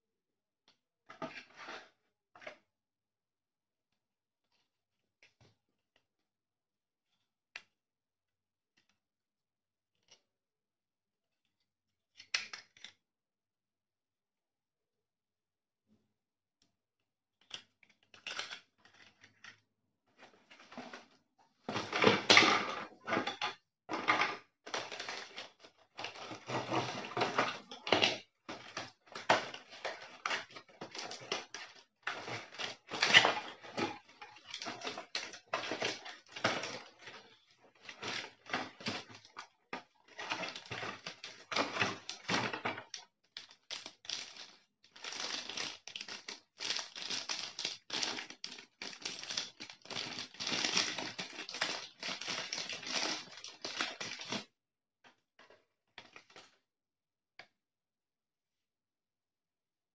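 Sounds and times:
cardboard and paper crinkling: 0:24.7 - 0:54.4.

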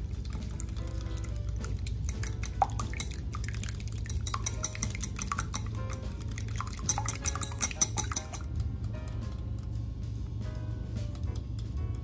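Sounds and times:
whisk clicking against glass bowl: 0:00.0 - 0:08.6.

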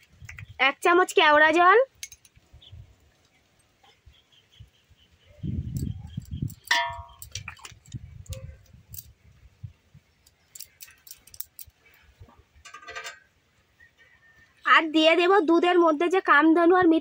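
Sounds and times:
metal spoon clinking cookware: 0:06.6 - 0:07.6, 0:12.6 - 0:13.2.

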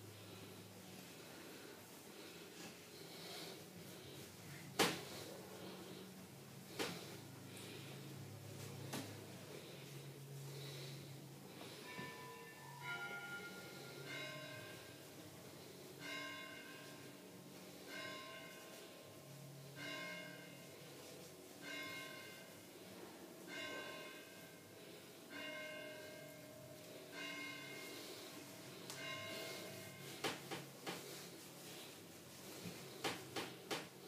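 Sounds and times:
bell-like chimes ringing: 0:11.7 - 0:20.9, 0:21.5 - 0:30.2.

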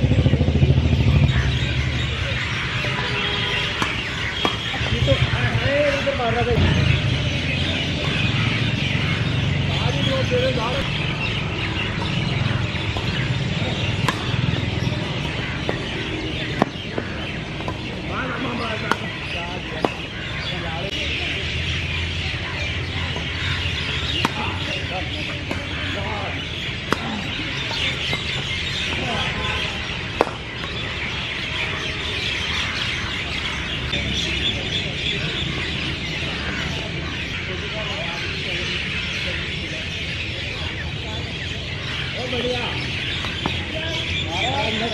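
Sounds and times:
birds chirping: 0:00.0 - 0:44.9
rackets hitting shuttlecock: 0:03.6 - 0:05.0, 0:11.8 - 0:20.2, 0:23.1 - 0:29.4, 0:30.0 - 0:31.1, 0:43.1 - 0:43.7.

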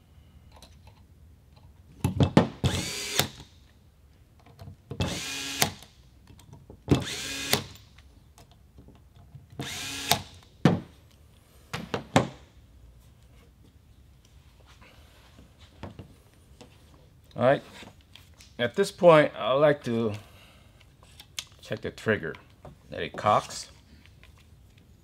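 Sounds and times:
electric screwdriver whining: 0:09.6 - 0:10.2.

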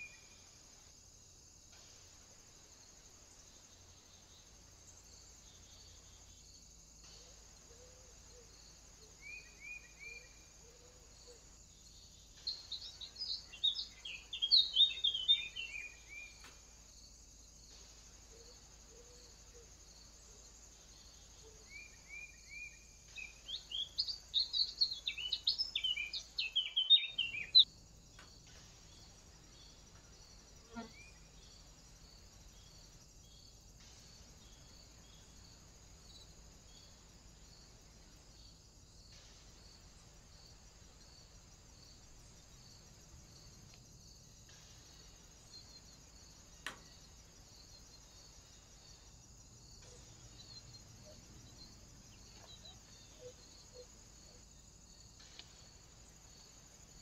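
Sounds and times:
rapid bird song: 0:11.8 - 0:16.4, 0:21.0 - 0:27.7.

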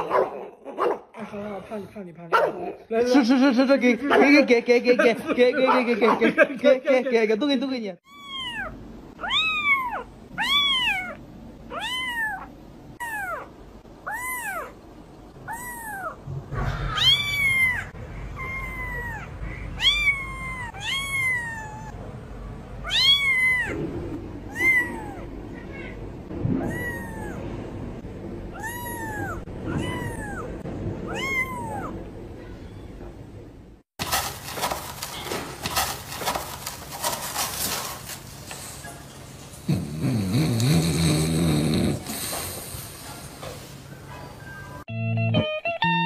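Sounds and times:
kitten meowing: 0:08.1 - 0:13.5, 0:14.1 - 0:14.8, 0:16.9 - 0:22.0, 0:22.8 - 0:23.8, 0:24.5 - 0:26.0, 0:26.6 - 0:27.4, 0:28.6 - 0:30.5, 0:31.1 - 0:31.9.

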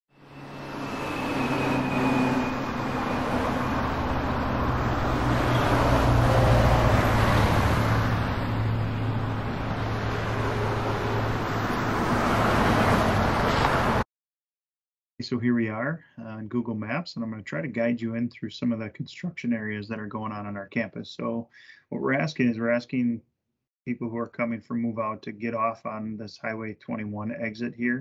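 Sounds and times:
cars passing: 0:00.2 - 0:14.0
heavy trucks engine hum: 0:00.2 - 0:14.0.

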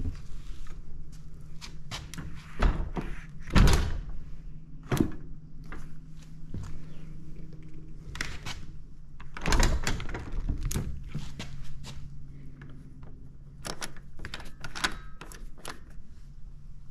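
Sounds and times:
door handle and bolt clicking: 0:13.6 - 0:16.0.

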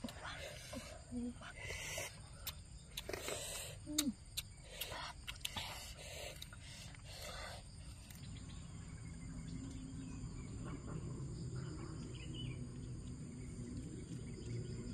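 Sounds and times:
faint insect drone: 0:00.0 - 0:14.9
bird chirps: 0:08.1 - 0:14.9.

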